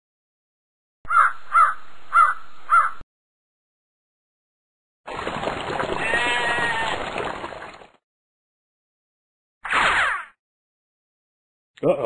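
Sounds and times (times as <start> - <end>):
harsh bird caws: 1.1 - 3.0.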